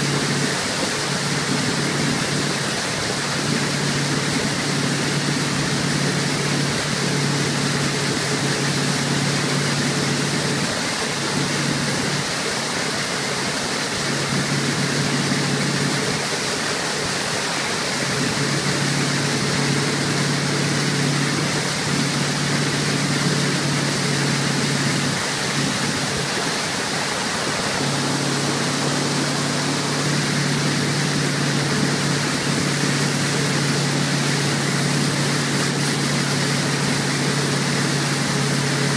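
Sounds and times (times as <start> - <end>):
boat motor running: 0.0 - 38.9
rushing water: 0.0 - 38.9
wind noise: 21.2 - 33.9.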